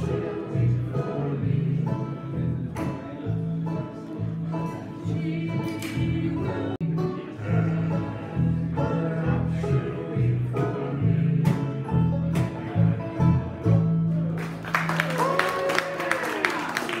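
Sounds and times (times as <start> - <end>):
voices singing in harmony: 0.0 - 13.4
acoustic guitar: 0.0 - 14.9
banjo: 0.0 - 14.9
upright bass: 0.0 - 15.0.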